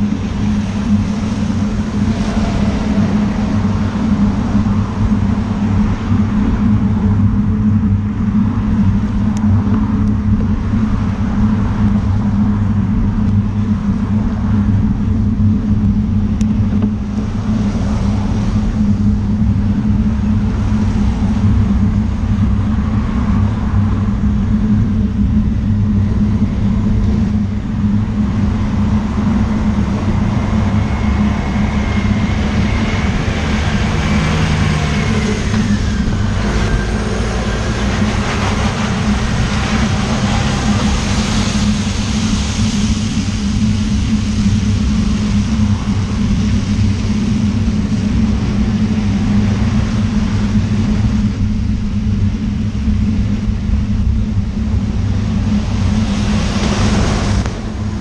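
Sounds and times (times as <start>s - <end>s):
wind and road rumble: 0.0s - 58.0s
car tyres hissing on wet road: 0.1s - 6.3s, 17.0s - 19.1s, 28.3s - 51.2s, 55.4s - 58.0s.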